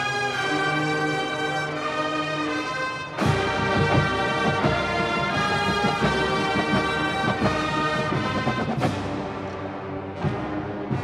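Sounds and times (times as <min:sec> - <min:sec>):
brass chords: 0:00.0 - 0:11.0
drums beating: 0:03.2 - 0:11.0.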